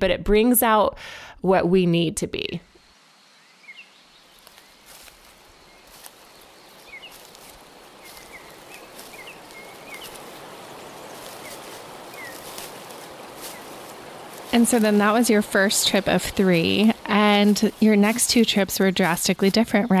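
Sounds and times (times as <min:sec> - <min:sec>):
steady rushing hiss: 0:02.8 - 0:19.9
high bird chirps: 0:05.7 - 0:12.6.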